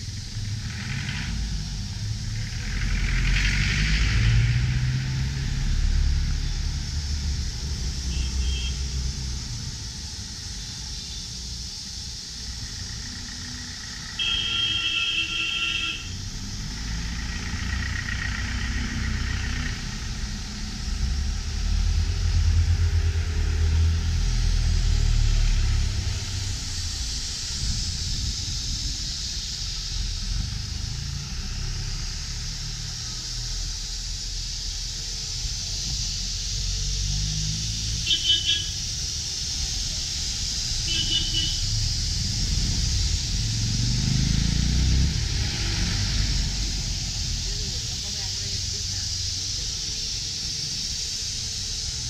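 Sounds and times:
steam hiss: 0:00.0 - 0:52.0
shrill steam whistle: 0:38.0 - 0:38.8, 0:40.8 - 0:41.8.

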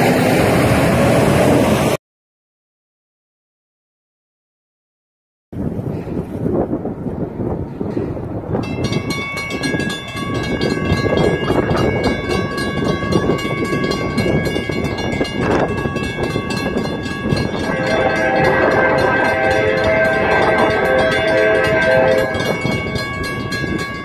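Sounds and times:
railroad crossing bell ringing: 0:07.6 - 0:24.0
train horn: 0:16.9 - 0:23.3.

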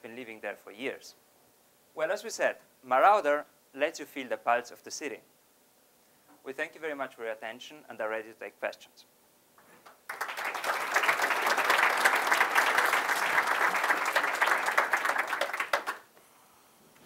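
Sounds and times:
audience applauding: 0:09.9 - 0:16.1.

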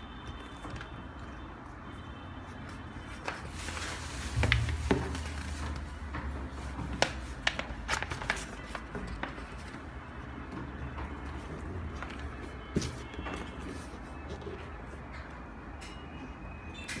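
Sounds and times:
paper rustling and crinkling: 0:02.6 - 0:15.0.

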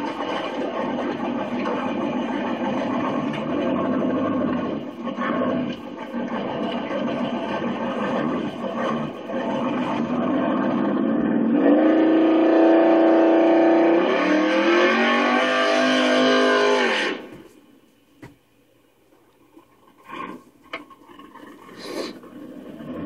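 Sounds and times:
car engine revving: 0:00.0 - 0:17.4.

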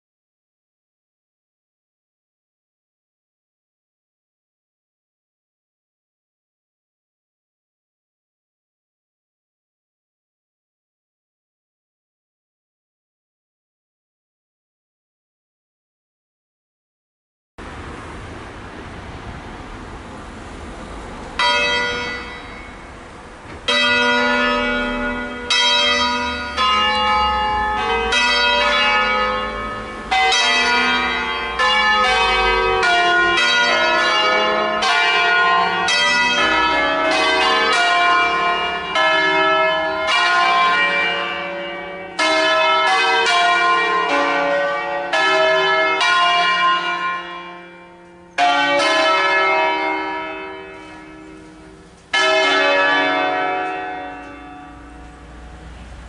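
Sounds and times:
church bells ringing: 0:20.6 - 0:56.0.

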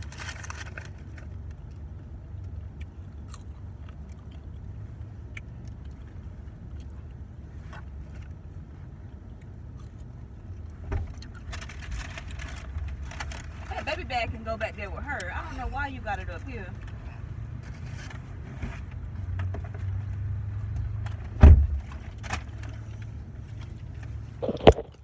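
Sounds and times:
clicks and crunches of eating: 0:00.0 - 0:08.4, 0:09.1 - 0:13.5, 0:24.4 - 0:25.0
car cabin rumble: 0:21.0 - 0:25.0.

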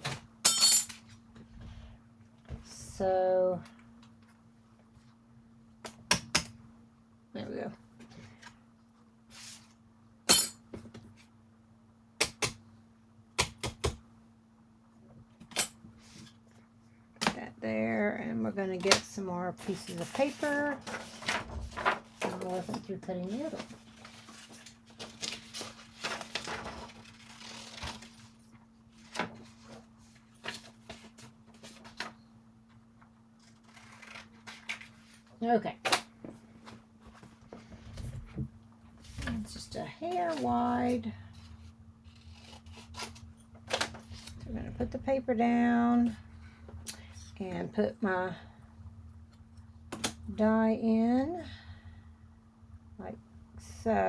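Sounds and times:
faint steady hum: 0:00.0 - 0:54.0
paper rustling and sliding: 0:19.7 - 0:32.1.

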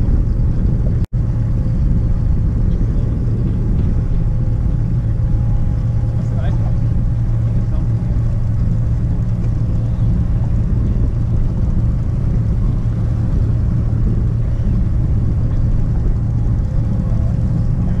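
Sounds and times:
outboard motor humming: 0:00.0 - 0:18.0.

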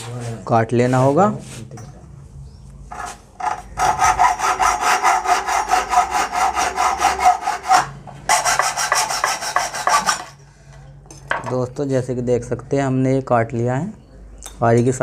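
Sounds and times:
hacksaw cutting metal pipe: 0:02.9 - 0:10.4.

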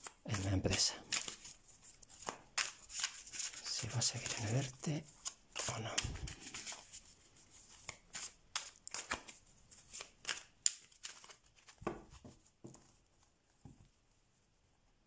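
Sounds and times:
cards being shuffled: 0:00.0 - 0:13.0.

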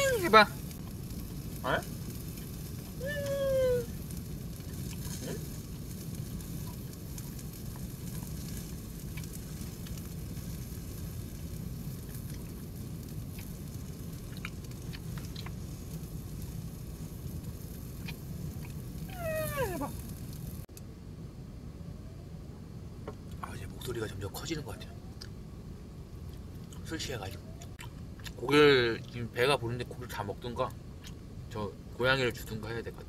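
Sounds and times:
low background noise: 0:00.0 - 0:33.0
cat meowing: 0:03.0 - 0:03.9, 0:19.1 - 0:19.9.

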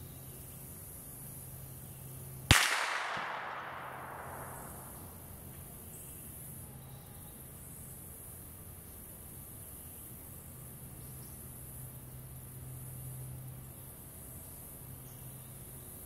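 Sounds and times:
gunshot echo: 0:02.5 - 0:05.2
rifle shot crack: 0:02.5 - 0:05.2.

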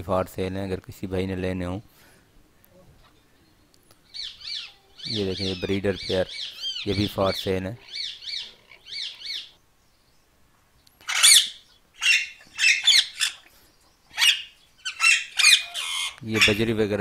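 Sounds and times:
parakeets chirping: 0:04.1 - 0:09.6, 0:11.0 - 0:17.0
parakeets squawking harshly: 0:04.2 - 0:09.5, 0:11.0 - 0:13.5, 0:14.1 - 0:17.0.

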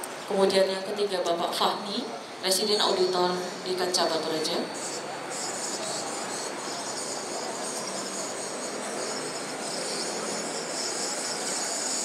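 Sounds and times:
high-pitched buzz: 0:02.6 - 0:12.0.

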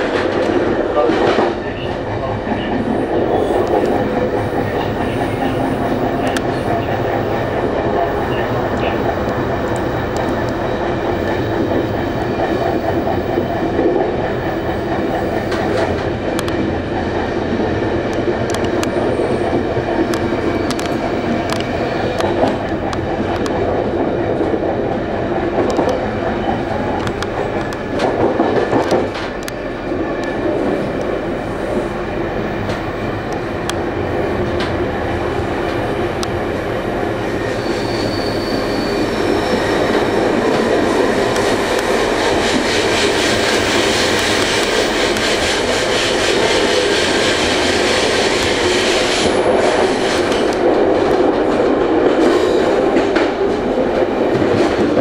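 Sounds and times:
train wheels rumbling on rail: 0:00.0 - 0:55.0
high wheel squeal: 0:37.3 - 0:40.7.

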